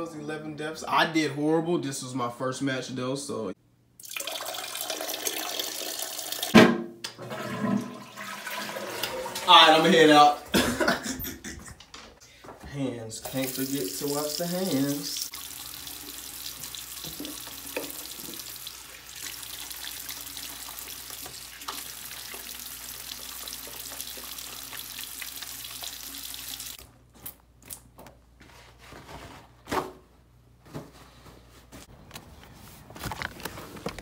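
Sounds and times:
faucet running into a sink: 4.0s - 6.5s, 13.2s - 26.8s
paper towel rustling: 28.0s - 34.0s.

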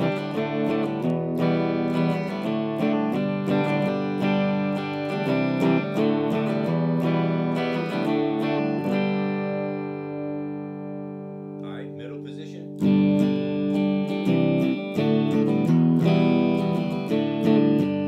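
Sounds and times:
clean electric guitar notes and chords: 0.0s - 18.0s.

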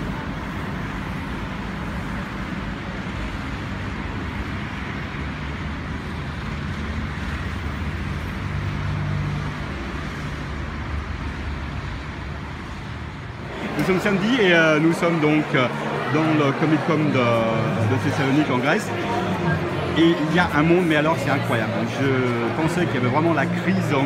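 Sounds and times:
street traffic hum: 0.0s - 24.0s.

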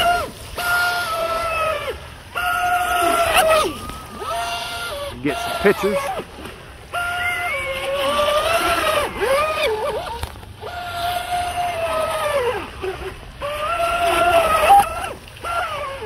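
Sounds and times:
electric motor whining: 0.0s - 6.2s.

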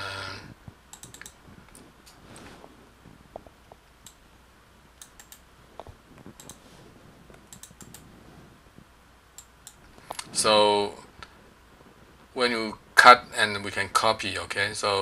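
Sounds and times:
keyboard keystrokes: 0.9s - 1.4s, 6.2s - 6.6s, 7.4s - 8.1s
mouse clicks: 0.9s - 1.8s, 5.0s - 6.6s, 7.3s - 8.1s.

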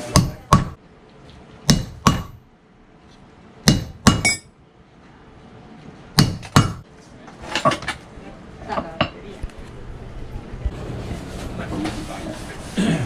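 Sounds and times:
hammer striking metal tool: 1.7s - 2.4s, 3.6s - 4.5s, 6.2s - 6.8s.

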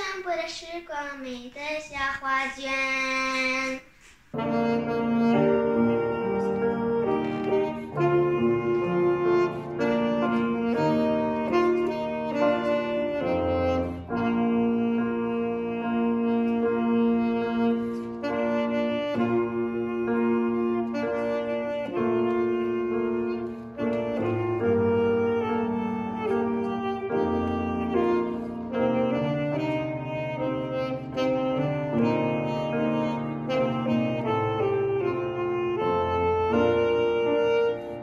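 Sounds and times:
grand piano accompaniment: 4.3s - 38.0s
saxophone playing slow melody: 4.3s - 38.0s.

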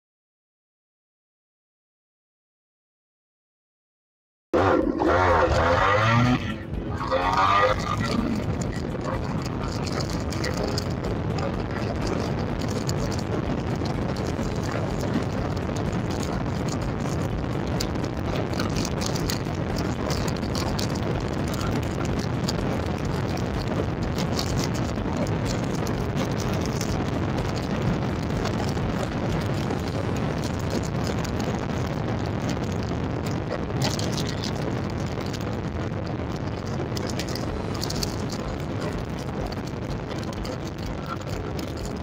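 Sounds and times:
wind noise on microphone: 4.6s - 42.0s.

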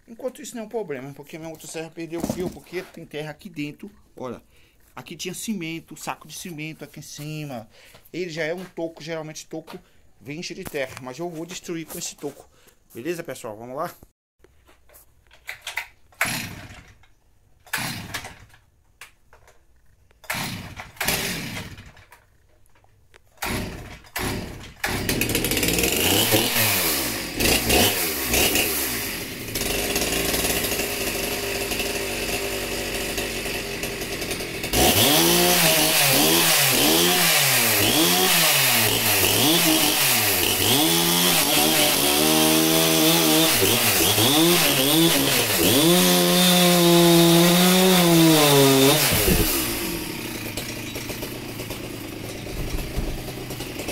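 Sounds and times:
chainsaw pull-start cord: 1.0s - 3.7s, 15.3s - 53.9s
chainsaw cutting wood: 1.4s - 3.0s, 15.5s - 17.0s, 17.6s - 18.7s, 20.1s - 22.5s, 23.2s - 53.9s
chainsaw engine revving: 16.2s - 17.0s, 17.6s - 18.6s, 20.2s - 22.4s, 23.3s - 53.9s.

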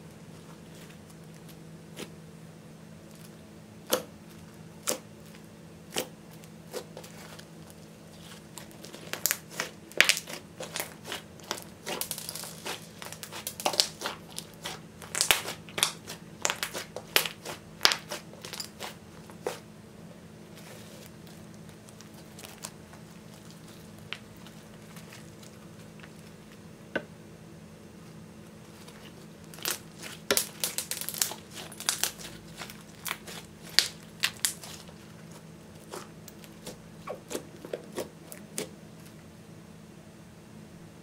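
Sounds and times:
slime popping and crackling: 4.8s - 19.6s, 20.6s - 26.6s, 28.8s - 38.7s.

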